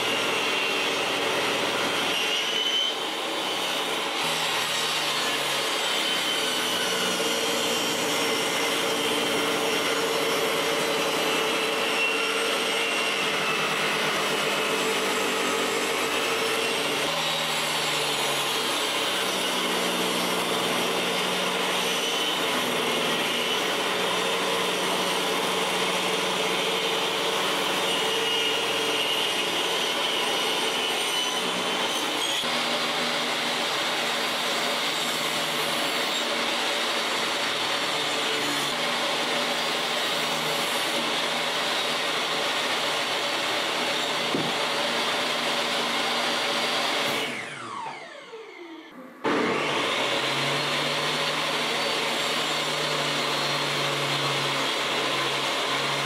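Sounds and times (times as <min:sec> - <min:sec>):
table saw cutting wood: 0:00.0 - 0:56.0.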